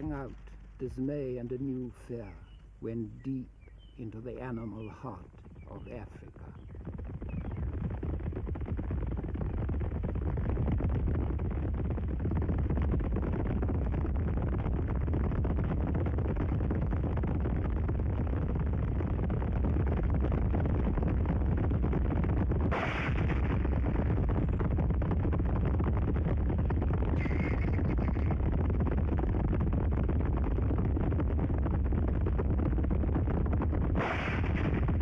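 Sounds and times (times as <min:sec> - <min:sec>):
hooves drumming of galloping herd: 0:06.3 - 0:22.5, 0:23.8 - 0:34.1
short sharp noise: 0:34.0 - 0:35.0.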